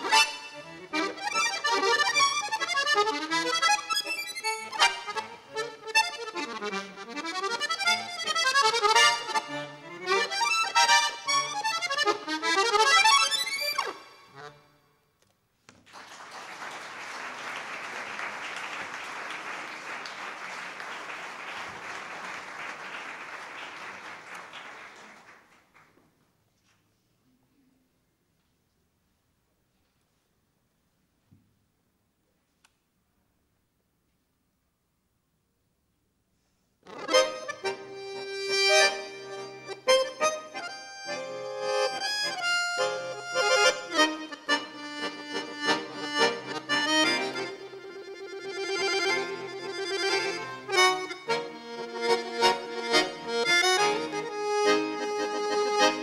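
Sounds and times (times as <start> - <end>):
accordion chord: 0.0 - 15.1, 36.8 - 56.0
audience applause: 15.8 - 26.0.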